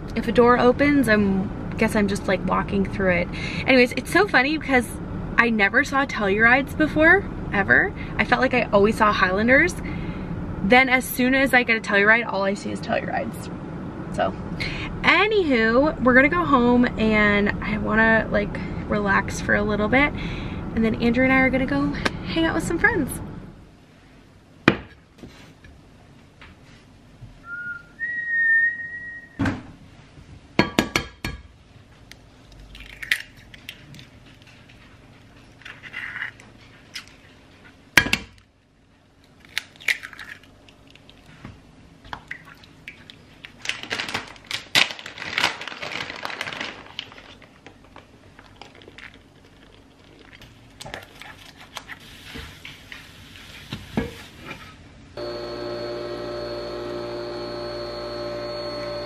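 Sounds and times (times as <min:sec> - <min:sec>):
eggs cracked on pan: 0:39.4 - 0:41.2
coffee machine humming: 0:55.2 - 0:59.0.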